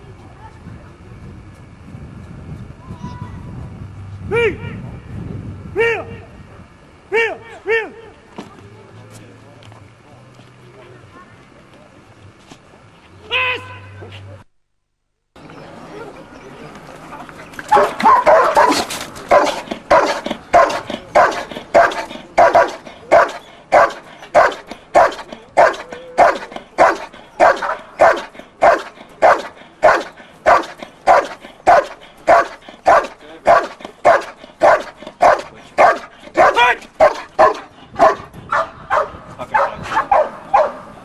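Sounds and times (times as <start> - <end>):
dog barking rhythmically: 17.7 - 40.9.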